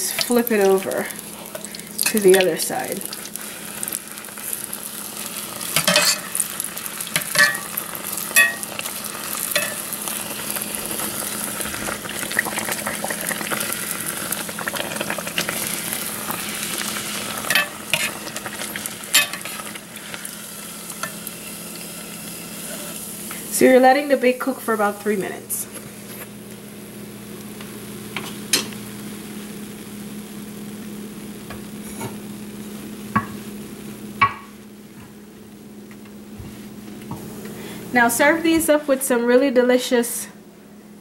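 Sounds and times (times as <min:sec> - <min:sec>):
dough sizzling in hot oil: 0:00.0 - 0:39.1
metal spoon clinking against pot: 0:07.3 - 0:07.7, 0:08.4 - 0:08.6, 0:09.6 - 0:09.8.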